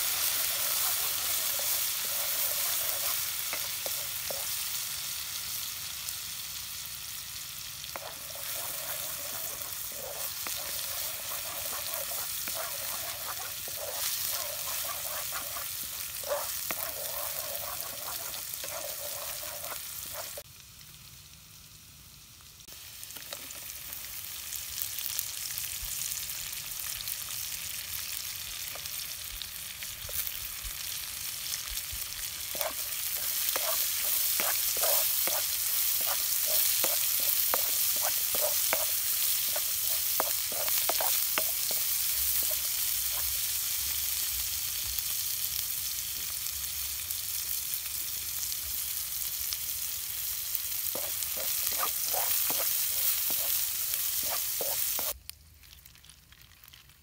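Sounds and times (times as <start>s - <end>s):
wooden spatula scraping a wok: 0.0s - 4.6s, 7.9s - 20.4s, 32.5s - 43.4s, 50.9s - 55.2s
food sizzling in hot oil: 0.0s - 57.0s.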